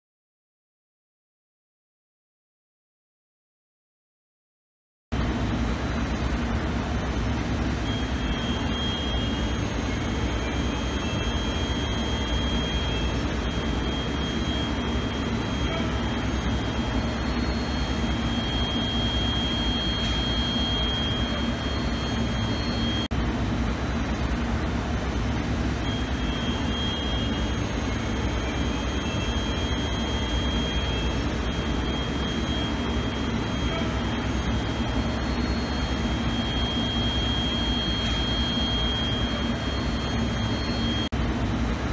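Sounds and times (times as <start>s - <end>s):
convection blowers whirring: 5.2s - 41.9s
thin high whine: 6.2s - 23.1s, 25.4s - 41.1s.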